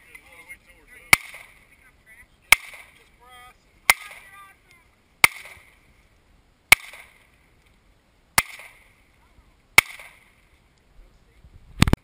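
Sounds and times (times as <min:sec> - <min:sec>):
handgun shots with echo: 0:02.5 - 0:03.0, 0:06.7 - 0:07.2, 0:08.4 - 0:08.8, 0:09.8 - 0:10.3.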